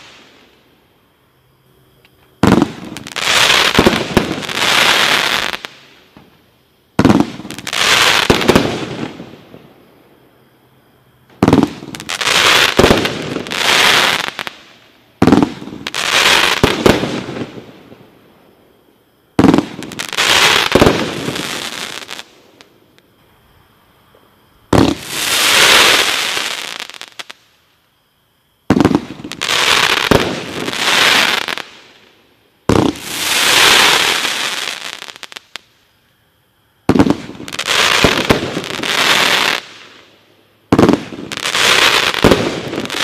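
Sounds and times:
firework crackling hiss: 0.0s - 0.9s, 2.0s - 9.9s, 11.3s - 18.2s, 19.3s - 23.4s, 24.4s - 27.9s, 28.6s - 36.0s, 36.8s - 43.0s
firework bangs: 2.4s - 6.3s, 7.0s - 9.6s, 11.4s - 14.6s, 15.2s - 17.7s, 19.4s - 22.3s, 24.7s - 27.3s, 28.7s - 31.8s, 32.6s - 35.4s, 36.8s - 40.0s, 40.7s - 43.0s.

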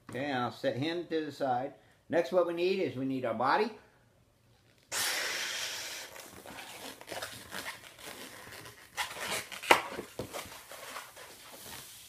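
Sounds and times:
balloon squeaking and crinkling: 4.6s - 12.0s
air rushing from balloon nozzle: 4.9s - 6.9s.

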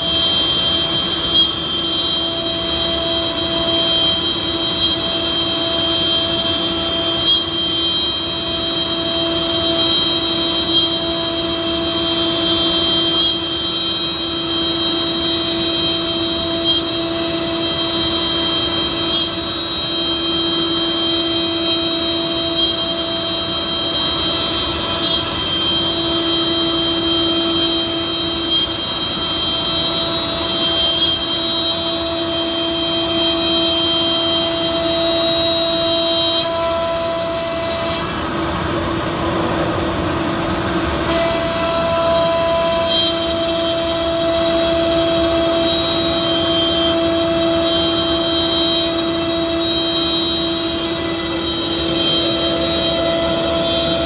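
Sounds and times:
router spindle whine: 0.0s - 54.0s
wood cutting noise: 35.4s - 54.0s.

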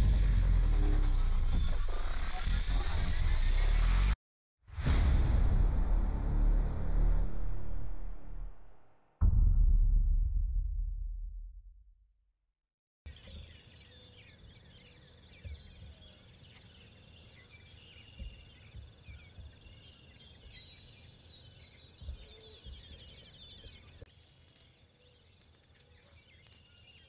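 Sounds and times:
faint low thumps: 9.2s - 11.9s
birds chirping and singing: 13.1s - 27.0s.

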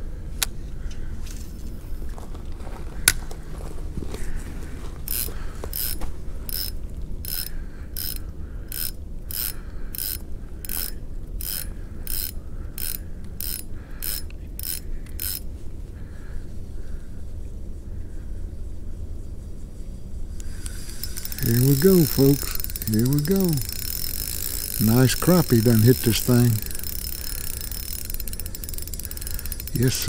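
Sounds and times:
low steady rumble: 0.0s - 30.0s
fishing reel gears clicking: 5.1s - 15.5s, 20.4s - 30.0s.

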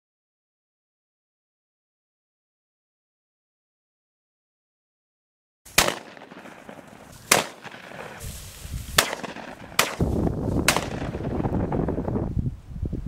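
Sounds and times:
shotgun shots: 5.7s - 8.2s, 8.9s - 11.6s
wind rumble on microphone: 8.2s - 13.0s.

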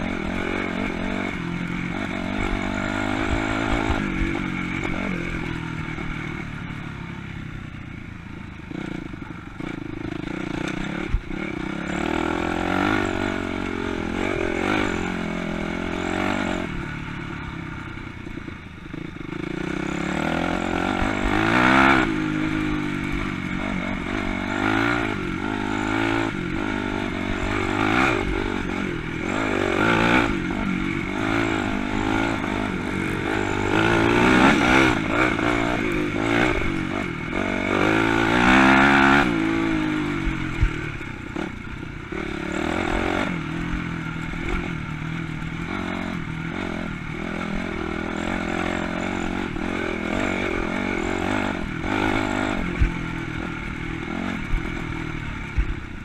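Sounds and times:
dirt bike engine revving: 0.0s - 56.0s.

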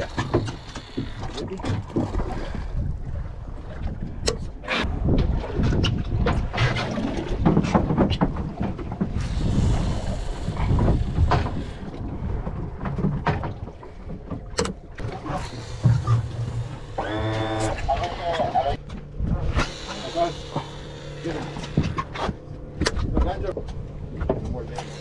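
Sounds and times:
wind on microphone: 2.1s - 13.3s.

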